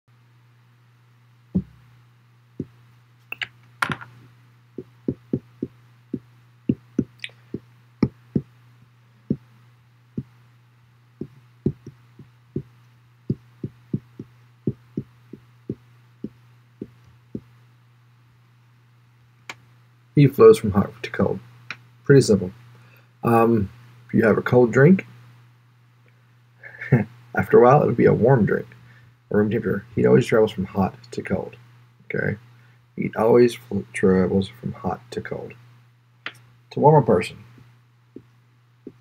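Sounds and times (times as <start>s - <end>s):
steady low hum: 0.1s - 39.0s
marker tapping on glass board: 3.4s - 4.1s, 4.8s - 5.7s, 11.3s - 12.0s.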